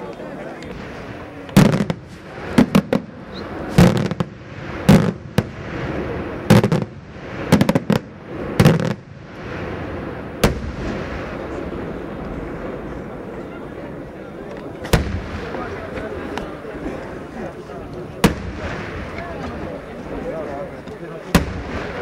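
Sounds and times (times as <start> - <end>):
fireworks bangs echoing: 0.6 - 14.0, 14.7 - 17.0, 18.1 - 22.0.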